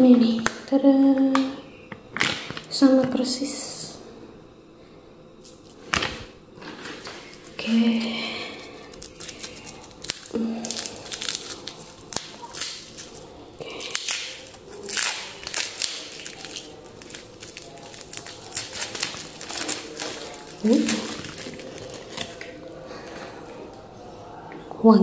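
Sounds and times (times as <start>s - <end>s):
plastic wrapping crinkling: 5.4s - 23.2s.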